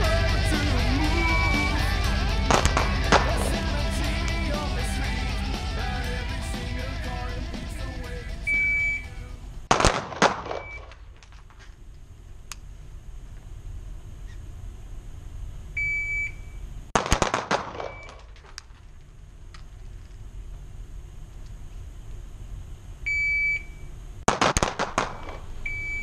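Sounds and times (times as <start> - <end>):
electronic beep: 1.0 - 2.0, 8.4 - 9.2, 25.7 - 26.0.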